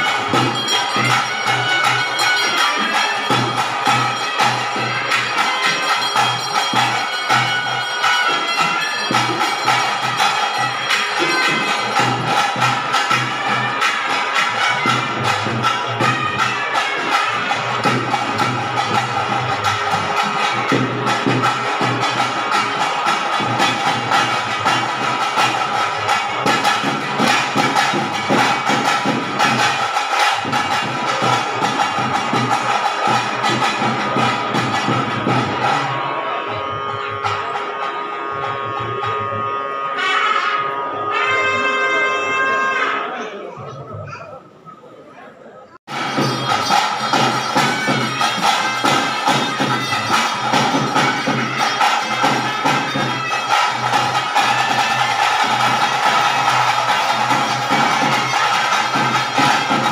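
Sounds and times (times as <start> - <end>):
drums in fast rhythm: 0.0 - 40.1, 45.8 - 59.9
reedy double-reed pipe melody: 0.0 - 43.2, 45.9 - 59.9.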